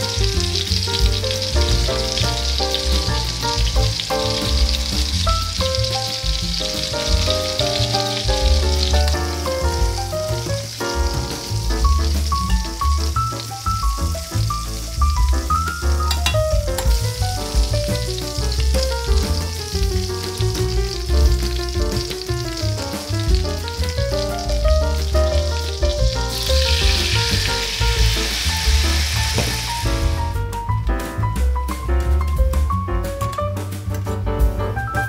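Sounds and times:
meat sizzling in a pot: 0.0s - 30.8s
background music: 0.0s - 35.0s.

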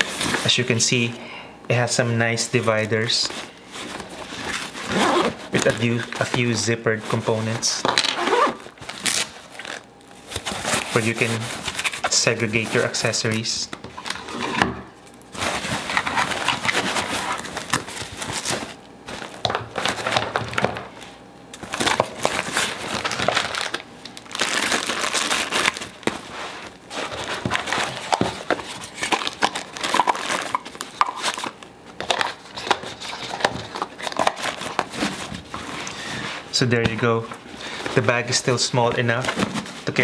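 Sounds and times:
fabric bag rustling and crinkling: 2.8s - 13.0s, 15.2s - 20.2s, 21.6s - 31.5s.

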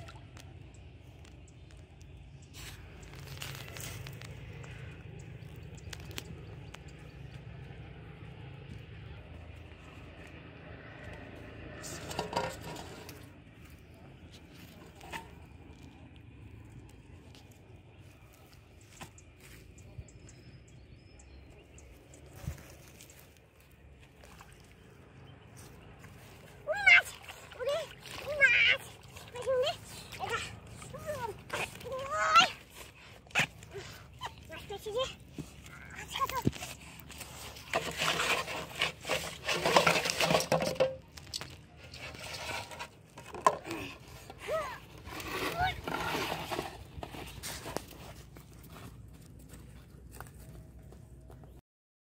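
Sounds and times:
bottles and fish knocking in metal basin: 39.7s - 41.4s.

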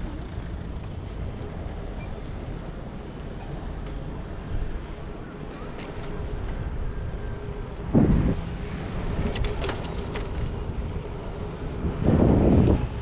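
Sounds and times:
low road rumble: 0.0s - 13.0s
wind rushing over microphone: 6.1s - 13.0s.

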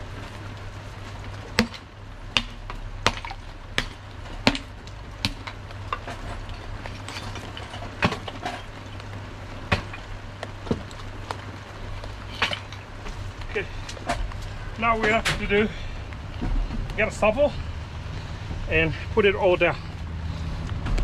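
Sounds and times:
hammer cracking clay pipe: 1.6s - 6.1s.

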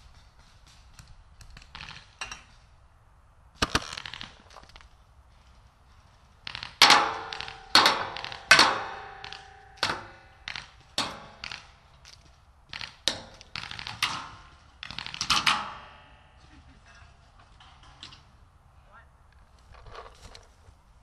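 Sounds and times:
paintball gunshots: 3.6s - 5.5s, 6.5s - 16.5s.

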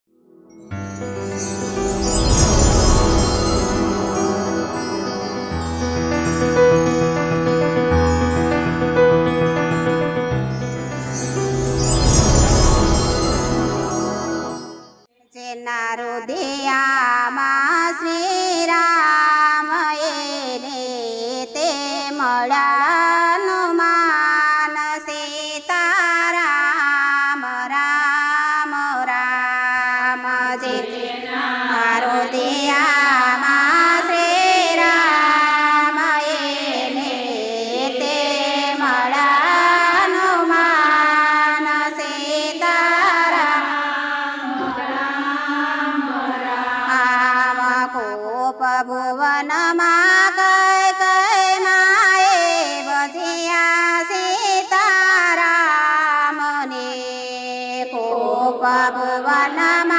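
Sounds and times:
women singing in unison: 15.4s - 59.9s.

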